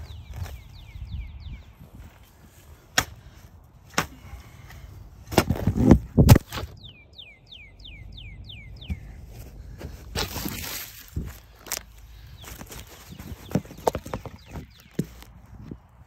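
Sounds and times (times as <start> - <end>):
spade chopping into soil: 2.9 - 3.2, 5.3 - 6.8.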